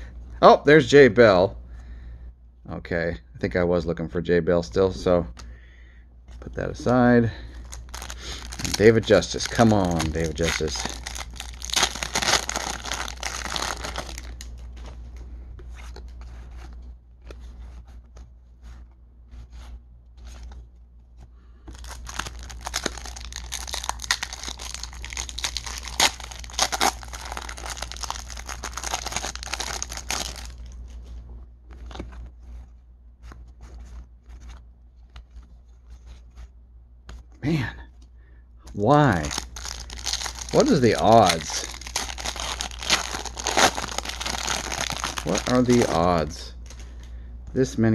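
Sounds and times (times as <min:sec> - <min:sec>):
plastic wrapper crinkling: 0:06.8 - 0:15.0, 0:21.7 - 0:32.4, 0:38.7 - 0:47.1
cards being shuffled: 0:07.6 - 0:46.9.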